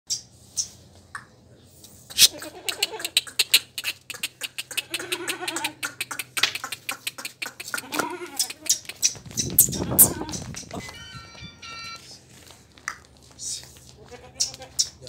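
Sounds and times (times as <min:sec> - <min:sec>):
goat bleating: 0:02.1 - 0:09.0, 0:09.7 - 0:10.8, 0:13.9 - 0:14.9.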